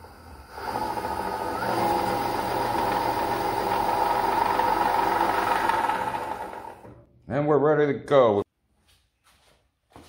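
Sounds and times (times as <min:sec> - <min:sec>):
band saw wheels humming: 0:00.0 - 0:07.0
motor whine: 0:00.0 - 0:07.0.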